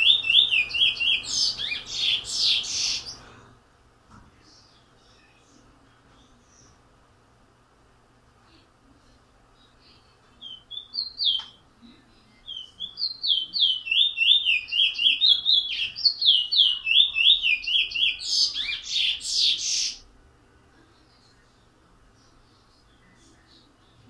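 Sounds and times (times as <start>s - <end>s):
songbird singing: 0.0s - 3.3s, 9.6s - 20.1s.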